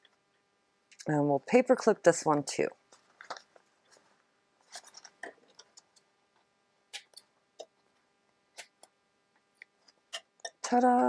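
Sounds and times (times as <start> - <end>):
paper rustling: 2.9 - 5.7.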